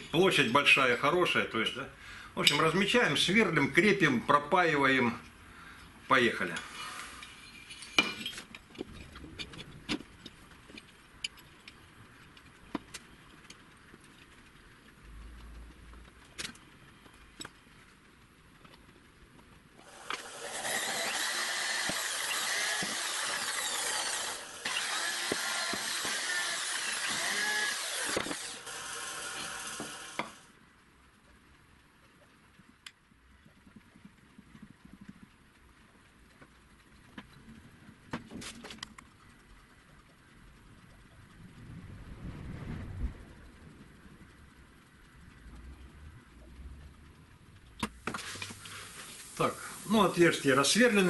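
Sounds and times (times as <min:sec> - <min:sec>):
electric drill boring into metal: 0:19.8 - 0:30.4.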